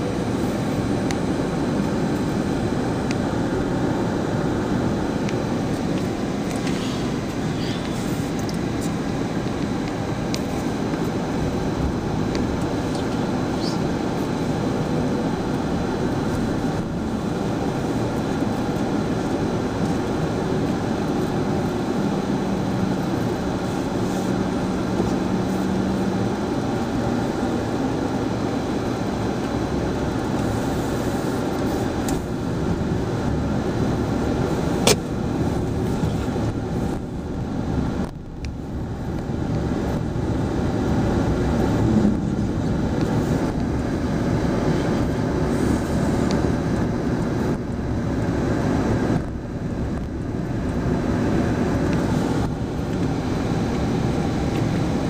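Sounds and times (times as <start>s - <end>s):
car road and engine noise: 0.0s - 55.0s
sharp click: 34.8s - 35.1s.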